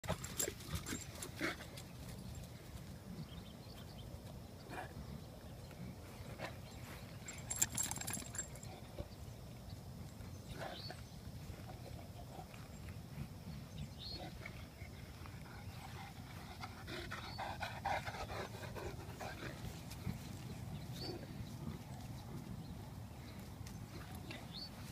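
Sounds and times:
dog sniffing and panting: 10.3s - 24.9s.

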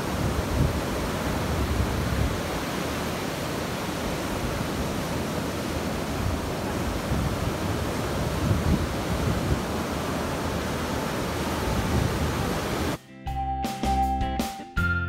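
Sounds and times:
ocean surf breaking on sand: 0.0s - 13.0s
wind rumbling on microphone: 0.0s - 13.0s.

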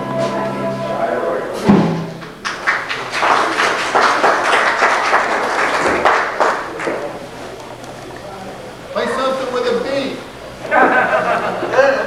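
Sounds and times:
crowd clapping: 2.2s - 8.2s.

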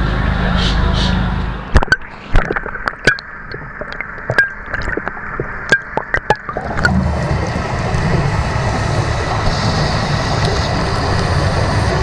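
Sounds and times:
sharp clicks underwater: 1.7s - 8.3s, 10.3s - 11.3s
regulator bubbles: 1.7s - 12.0s
muffled water hiss: 2.1s - 12.0s.

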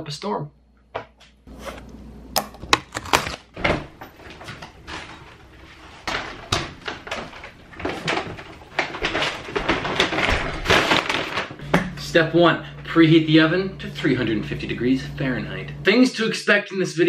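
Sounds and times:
house door opening: 2.6s - 12.0s
paper bags rustling: 2.8s - 11.7s.

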